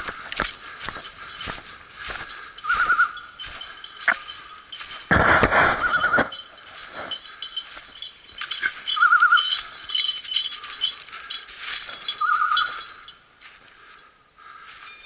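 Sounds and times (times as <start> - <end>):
footsteps rustling through dry leaves: 0.0 - 15.0
beeper collar warbling tone: 2.6 - 4.9, 5.6 - 10.9, 11.9 - 13.1.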